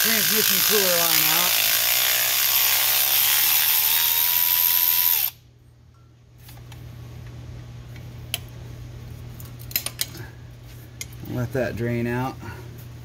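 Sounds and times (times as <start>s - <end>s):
power tool motor whining: 0.0s - 5.4s
low steady hum: 5.2s - 13.0s.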